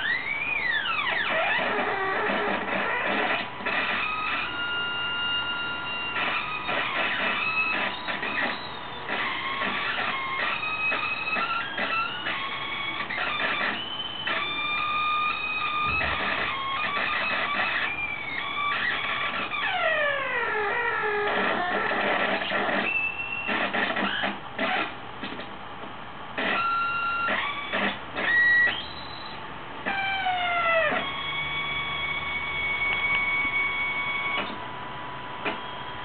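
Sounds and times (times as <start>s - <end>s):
glitchy square-wave synth tones: 0.0s - 25.4s, 26.3s - 36.0s.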